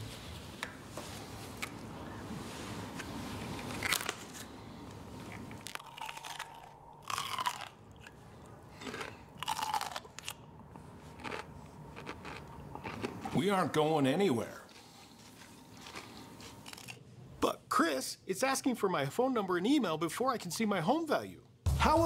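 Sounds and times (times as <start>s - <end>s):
celery crunching: 2.9s - 4.6s, 5.2s - 13.5s, 14.8s - 17.0s
quiet chewing: 3.0s - 13.4s, 14.7s - 17.0s.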